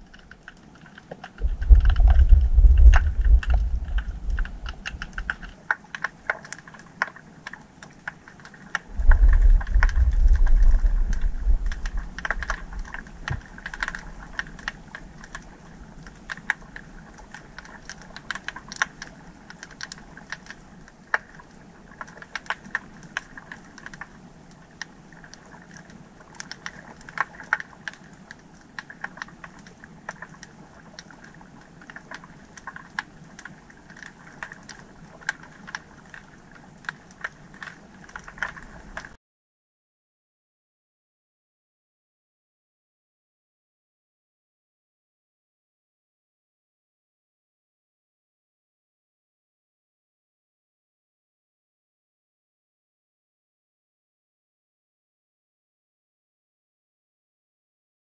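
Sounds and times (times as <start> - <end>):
deep underwater rumble: 0.0 - 5.7, 8.6 - 20.6
sharp underwater clicks: 0.0 - 39.2.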